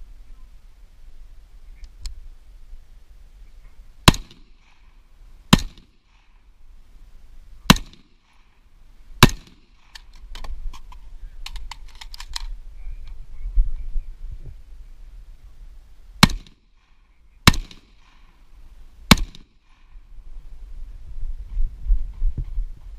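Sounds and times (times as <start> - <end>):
gunshots: 4.0 - 4.9, 5.5 - 6.4, 7.7 - 8.6, 9.2 - 10.1, 16.2 - 16.8, 17.4 - 18.3, 19.1 - 19.8
light clicks and rattling: 9.9 - 13.2.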